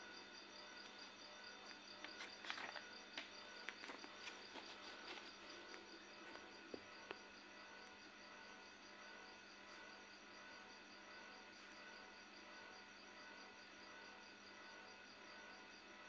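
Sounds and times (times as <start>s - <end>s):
paper booklet rustling: 2.1s - 5.8s.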